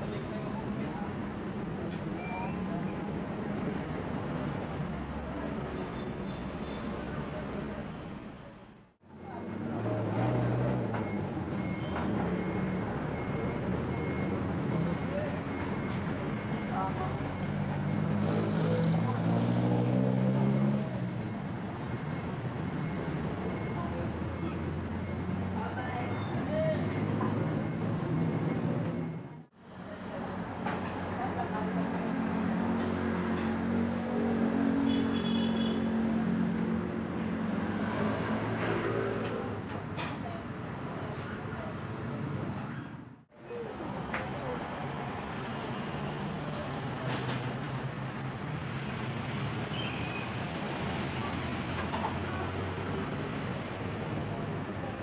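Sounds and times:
street din: 0:00.0 - 0:55.0
traffic noise: 0:00.0 - 0:55.0
passing vehicle engine hum: 0:09.2 - 0:21.4.

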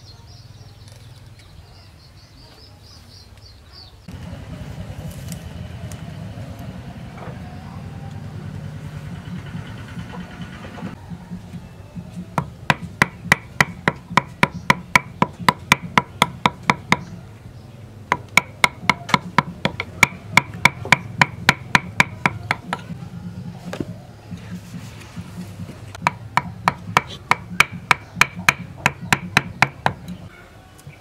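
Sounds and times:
mallet knocking on chisel: 0:18.1 - 0:23.0, 0:26.0 - 0:30.0.

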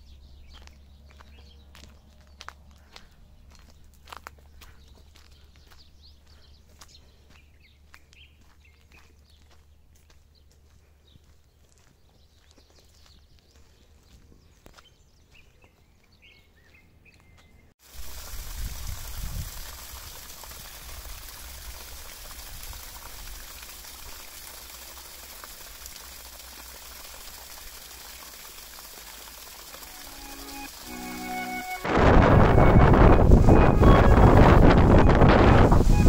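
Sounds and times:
music: 0:29.8 - 0:34.5
rushing noise with deep rumble: 0:31.9 - 0:36.0.

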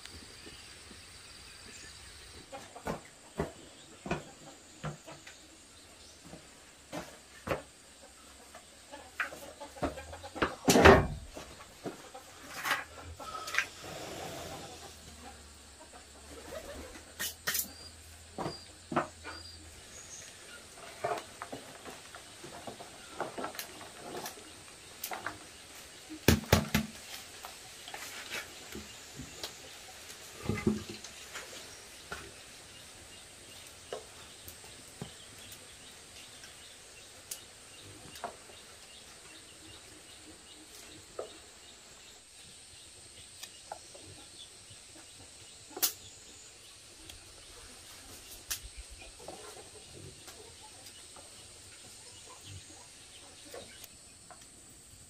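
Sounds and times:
faint high hiss: 0:13.2 - 0:15.2.

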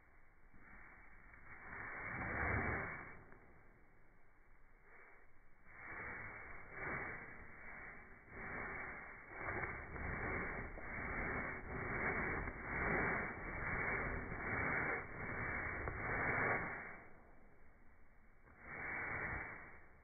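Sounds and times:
paintbrush scrubbing rough surface: 0:05.9 - 0:16.9.

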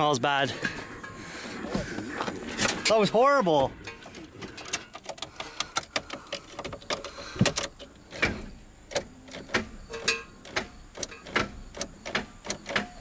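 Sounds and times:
sharp clicks and knocks: 0:03.8 - 0:13.0.

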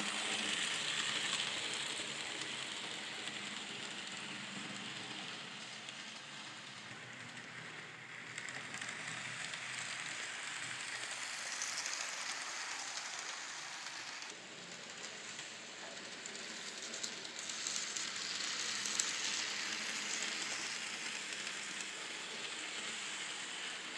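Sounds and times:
model trains rattling on track: 0:00.0 - 0:23.9.

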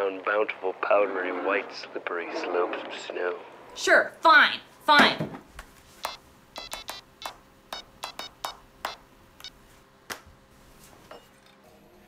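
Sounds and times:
phone keypad beeps: 0:06.0 - 0:09.6.

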